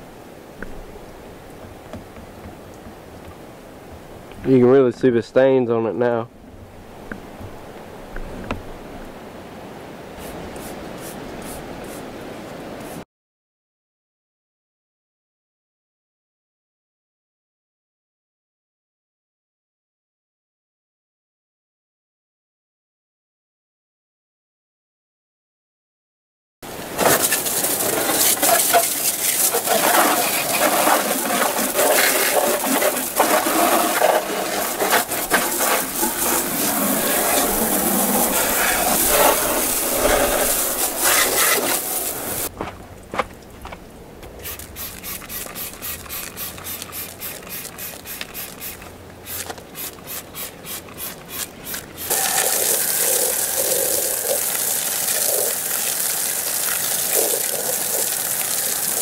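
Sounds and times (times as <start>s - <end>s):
hose water spraying on vehicle: 26.7s - 42.5s, 44.4s - 59.0s.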